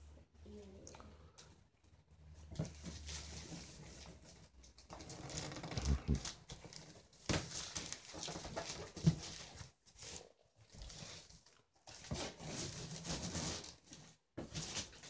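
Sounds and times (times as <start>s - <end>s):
wrapping paper crackling and tearing: 4.7s - 14.0s.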